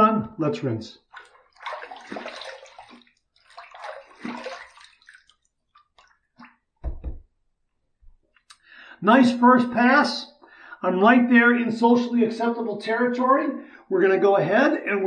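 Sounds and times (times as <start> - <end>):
water splashing: 1.0 - 7.2.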